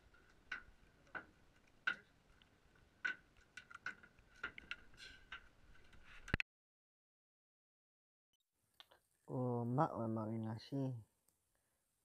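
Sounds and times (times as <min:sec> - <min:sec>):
sharp clicks and light taps: 0:00.0 - 0:06.4.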